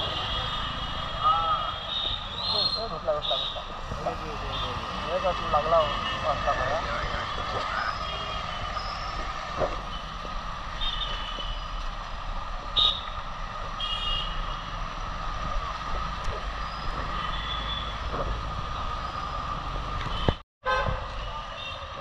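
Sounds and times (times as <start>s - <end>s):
street traffic on wet road: 0.0s - 22.0s.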